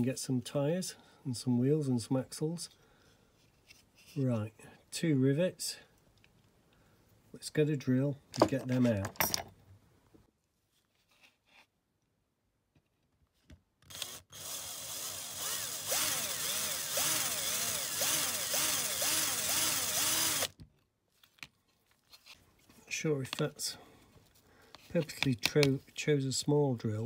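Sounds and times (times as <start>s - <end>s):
cordless drill drilling metal: 13.9s - 20.6s.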